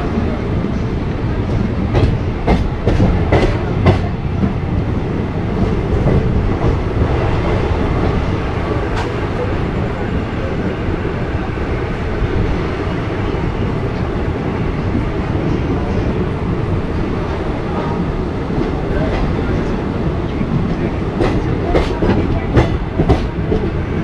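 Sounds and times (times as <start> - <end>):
train wheels rumbling on rails: 0.0 - 24.0
sharp clacks of train wheels: 1.5 - 4.5, 20.5 - 23.8.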